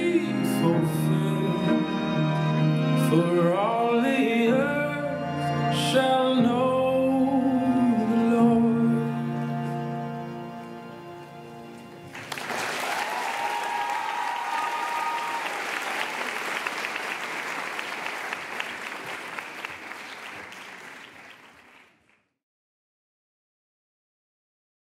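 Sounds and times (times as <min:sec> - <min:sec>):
music: 0:00.0 - 0:12.9
audience applauding: 0:12.0 - 0:22.2
audience cheering: 0:12.1 - 0:21.5.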